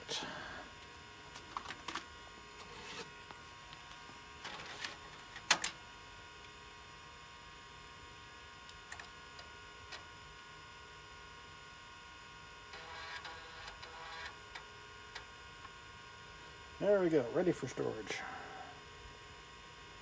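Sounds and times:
hard drive whine: 0:00.0 - 0:20.0.

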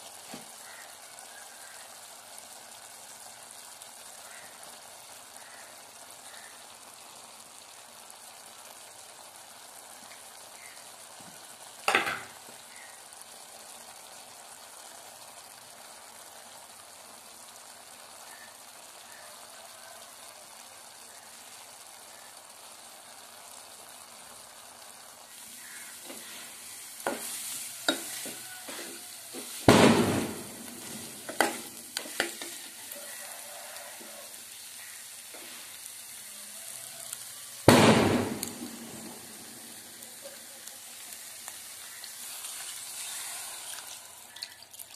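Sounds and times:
curry sizzling in a pot: 0:00.0 - 0:44.9
spoon stirring and scraping pot: 0:26.0 - 0:29.6, 0:30.9 - 0:32.7.

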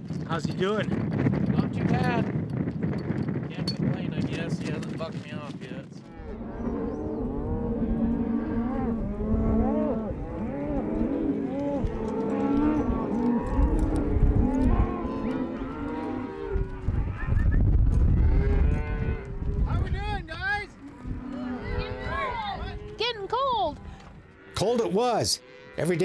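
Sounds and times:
cattle mooing: 0:06.0 - 0:17.4, 0:18.0 - 0:19.7, 0:20.7 - 0:26.0.

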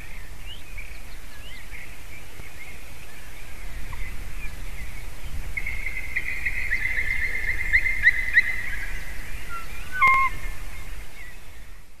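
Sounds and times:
eagle wavering call: 0:09.5 - 0:10.4.

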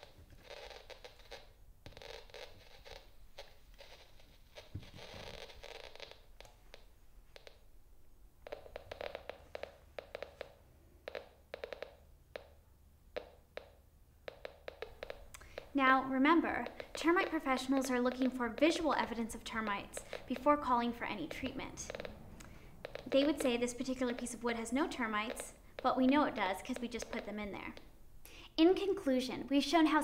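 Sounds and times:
handling and scraping noise: 0:00.0 - 0:06.8.

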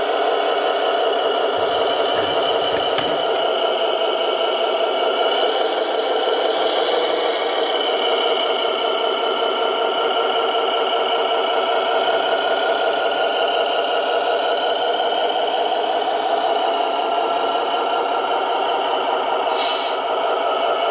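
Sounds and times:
brief hiss: 0:19.5 - 0:20.0.

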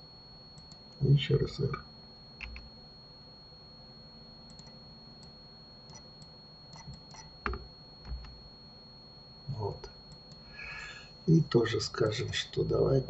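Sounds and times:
computer mouse and keyboard clicks: 0:02.4 - 0:02.7, 0:05.9 - 0:08.4
knock: 0:07.4 - 0:08.3.

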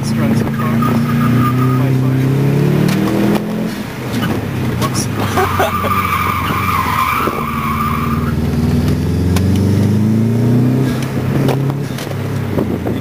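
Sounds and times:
car engine accelerating: 0:00.0 - 0:13.0
tyres squealing: 0:00.3 - 0:08.5.

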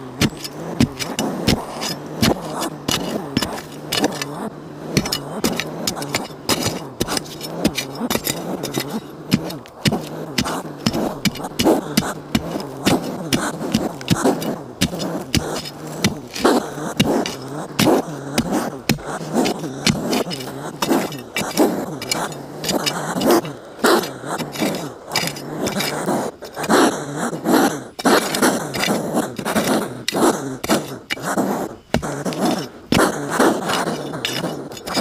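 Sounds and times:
metal blade chopping into dirt: 0:00.0 - 0:26.7, 0:28.0 - 0:35.0
soil crumbling and falling: 0:00.2 - 0:04.4, 0:05.0 - 0:23.0, 0:33.6 - 0:35.0.

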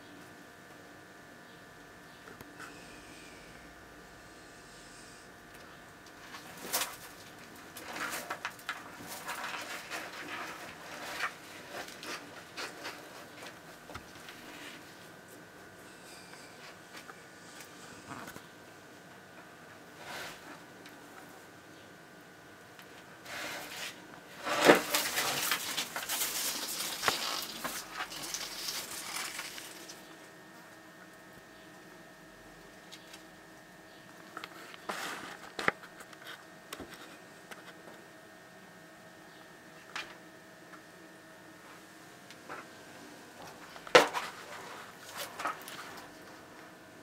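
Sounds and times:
lizard claws scratching on soil: 0:23.2 - 0:30.0.

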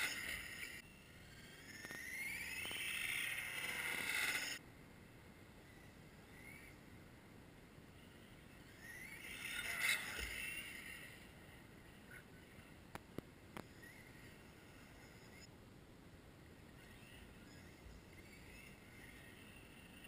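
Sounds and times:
radio-controlled car motor whine: 0:00.0 - 0:04.6, 0:05.7 - 0:06.8, 0:08.0 - 0:12.8, 0:13.6 - 0:15.5, 0:16.7 - 0:20.0.

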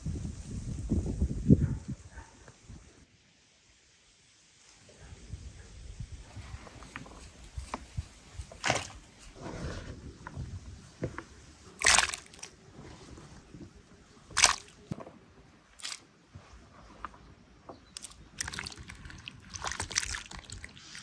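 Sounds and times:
water splashing: 0:08.6 - 0:09.1, 0:11.7 - 0:12.6, 0:14.3 - 0:14.9, 0:15.8 - 0:16.0, 0:18.0 - 0:21.0.

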